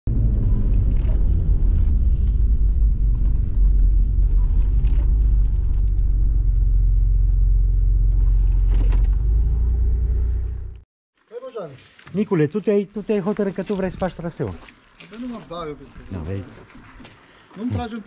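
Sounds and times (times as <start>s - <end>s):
vehicle engine rumbling: 0.0s - 10.8s.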